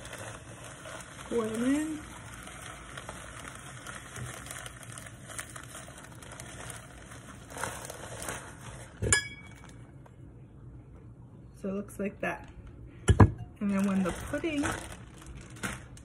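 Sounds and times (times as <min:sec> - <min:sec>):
plastic bag crinkling: 0:00.0 - 0:10.1, 0:13.6 - 0:16.0.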